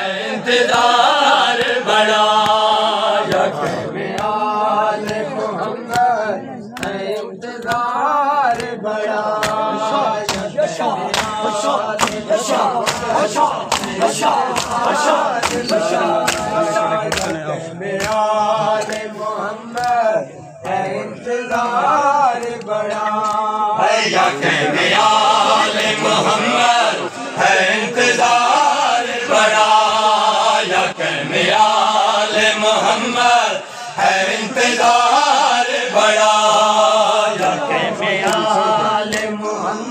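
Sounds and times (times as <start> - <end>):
men chanting in chorus: 0.0 - 39.9
hands slapping bare chests: 1.5 - 17.4, 18.0 - 19.1, 19.7 - 20.8, 22.3 - 23.5, 38.2 - 38.5, 39.1 - 39.4.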